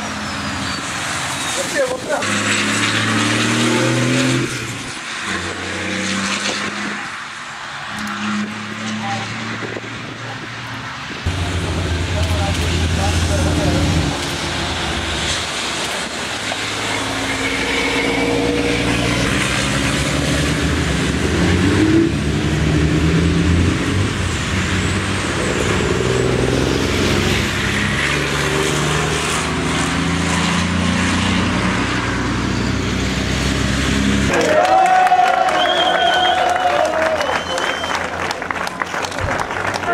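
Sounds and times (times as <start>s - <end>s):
racing truck engines passing: 0.0s - 39.9s
tyres hissing on wet track: 11.3s - 23.0s.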